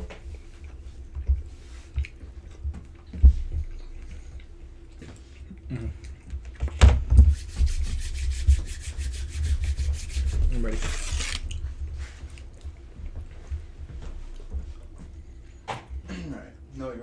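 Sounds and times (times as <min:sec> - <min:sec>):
hands rubbing together: 0:07.3 - 0:11.4.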